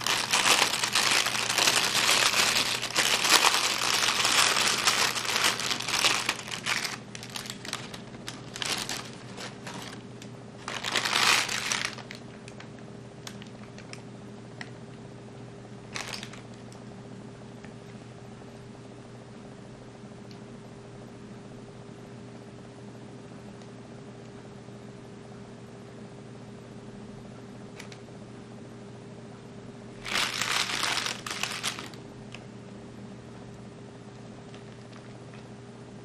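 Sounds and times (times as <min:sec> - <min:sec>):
plastic bag crinkling: 0:00.0 - 0:14.0, 0:15.9 - 0:16.7, 0:30.0 - 0:32.0
steady low hum: 0:00.0 - 0:36.0.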